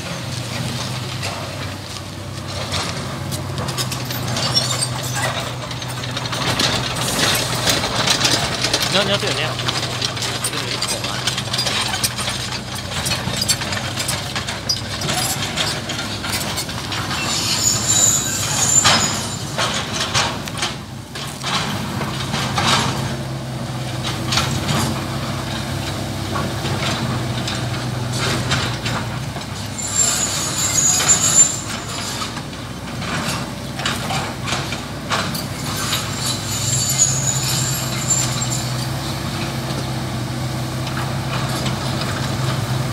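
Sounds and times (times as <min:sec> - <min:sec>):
excavator diesel engine running: 0:00.0 - 0:42.9
high-pitched metallic squeal: 0:03.7 - 0:20.2, 0:29.6 - 0:32.4, 0:35.3 - 0:39.6.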